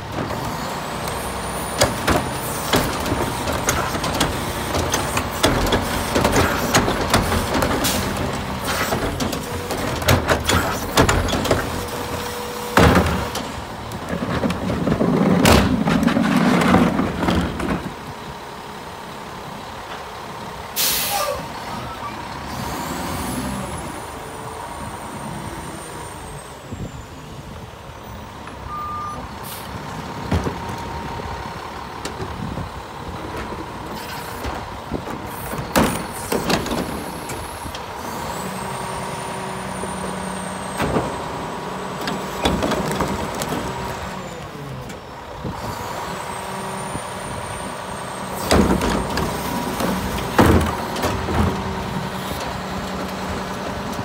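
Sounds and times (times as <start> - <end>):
trash cart clattering and thudding: 0.0 - 18.2, 29.9 - 38.7, 39.7 - 46.0, 48.2 - 54.0
diesel engine running: 0.0 - 54.0.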